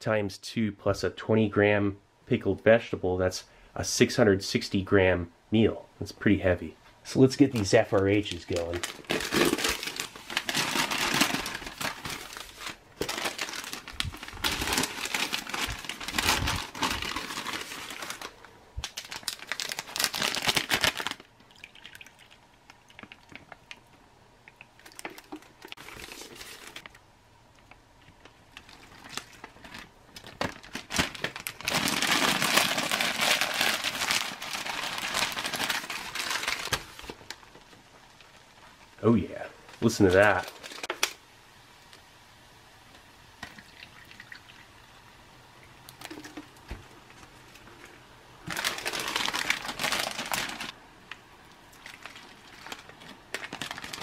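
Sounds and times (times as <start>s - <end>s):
plastic packaging crinkling: 7.4s - 24.0s, 24.8s - 27.0s, 27.6s - 38.7s, 39.7s - 41.2s, 45.9s - 50.8s, 51.4s - 54.0s.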